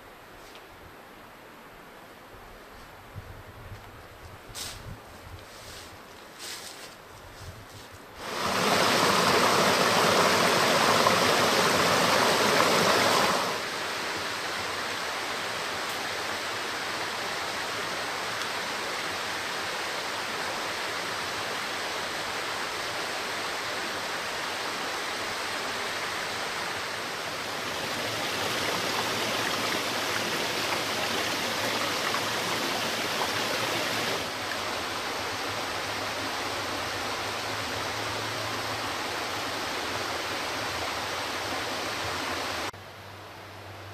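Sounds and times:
stream rushing over rocks: 0:08.2 - 0:42.7.

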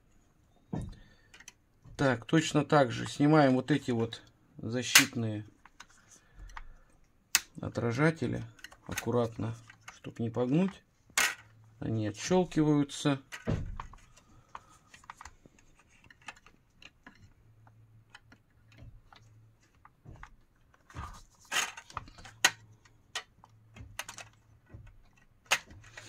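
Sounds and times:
small plastic clicks: 0:01.2 - 0:02.0, 0:13.2 - 0:26.0
sharp plastic snap: 0:04.9 - 0:05.2, 0:07.3 - 0:07.6
plastic scrape: 0:13.8 - 0:17.6, 0:19.1 - 0:26.0.

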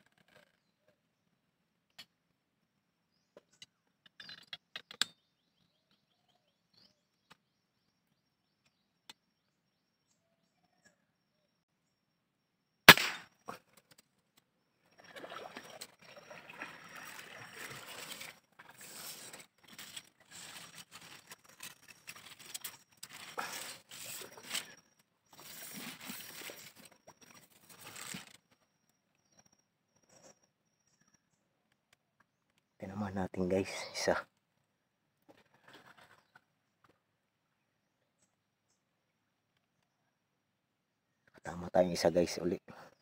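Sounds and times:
rifle shot: 0:12.9 - 0:13.3
duck splashing in water: 0:15.1 - 0:18.3.

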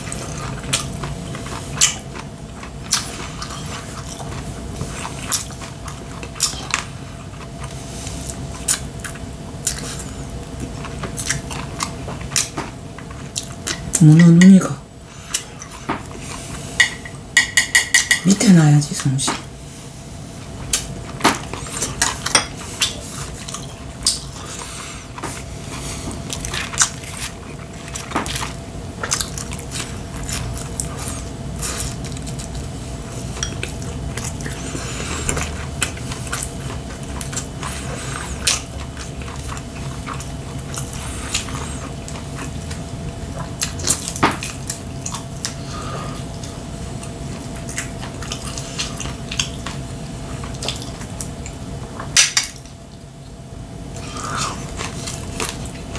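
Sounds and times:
person chewing: 0:00.0 - 0:18.7, 0:19.8 - 0:55.9
chopsticks clicking on ceramic bowls: 0:16.8 - 0:18.4.

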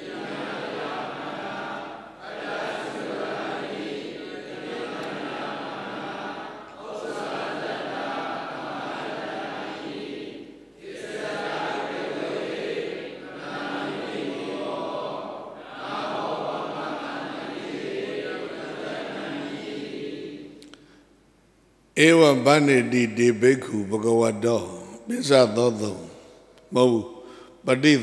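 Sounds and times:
voices chanting in unison: 0:00.0 - 0:20.8.

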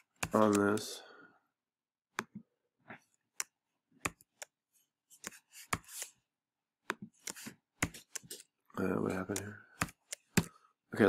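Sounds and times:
computer keyboard keystrokes: 0:00.0 - 0:00.9.

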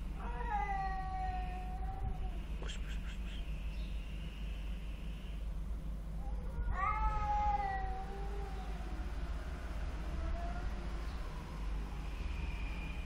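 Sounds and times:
cats yowling: 0:00.2 - 0:02.5, 0:06.2 - 0:11.4
steady low rumble: 0:01.0 - 0:13.0.

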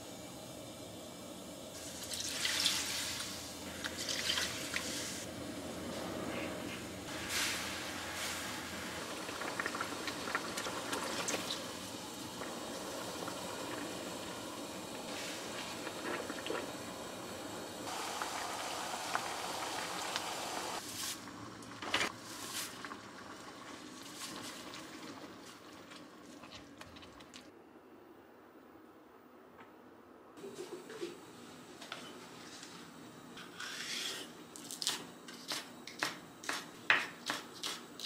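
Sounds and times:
broth simmering in a pan: 0:07.1 - 0:27.3.

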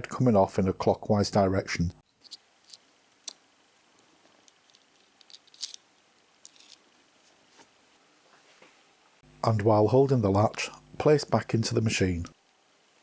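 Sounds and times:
small metal clicks: 0:04.4 - 0:05.8, 0:06.4 - 0:06.8.

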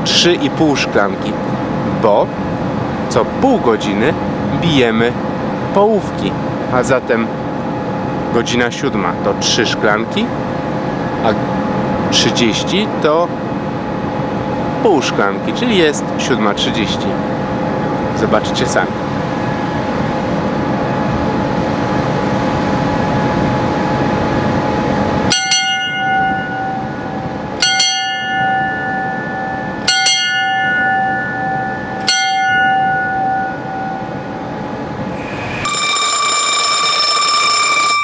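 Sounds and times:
ship's bell ringing: 0:24.8 - 0:38.0
high-pitched steady tone: 0:25.3 - 0:38.0.

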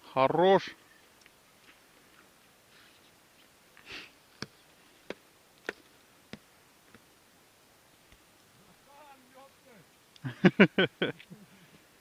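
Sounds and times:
person sniffing: 0:03.8 - 0:04.2.

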